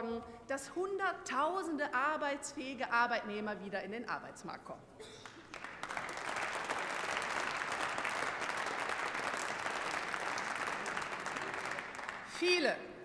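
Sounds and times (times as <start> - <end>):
dense steady applause: 5.2 - 12.8.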